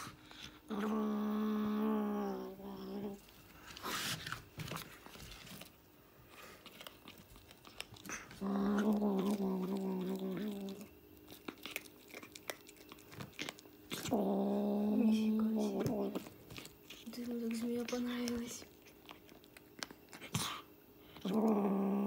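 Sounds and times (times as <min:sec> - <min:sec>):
kitten growling low: 0:00.0 - 0:03.3, 0:08.0 - 0:16.3, 0:20.1 - 0:22.0
kitten chewing and crunching: 0:02.8 - 0:22.0.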